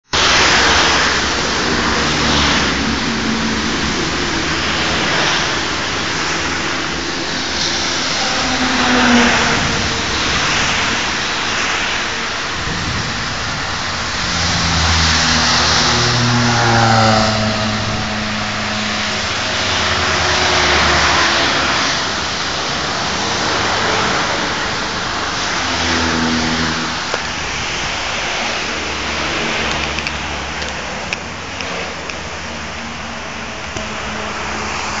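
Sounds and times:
car engine: 0.0s - 35.0s
rain and tyre spray hiss: 0.1s - 35.0s.

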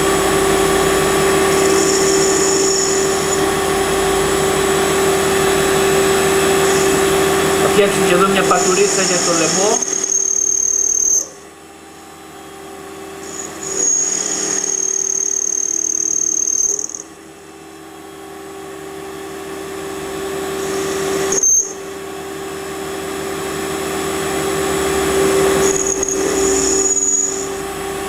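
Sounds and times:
high-pitched cutting whine: 0.0s - 17.2s, 19.6s - 28.0s
lathe motor hum: 0.0s - 18.7s.

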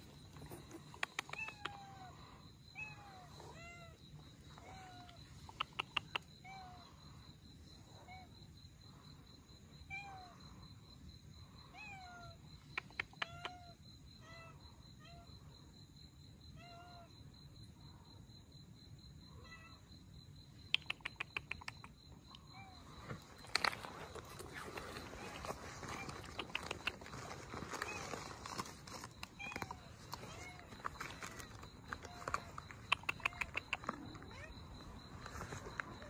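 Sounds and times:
sharp clicks: 32.2s - 34.0s.

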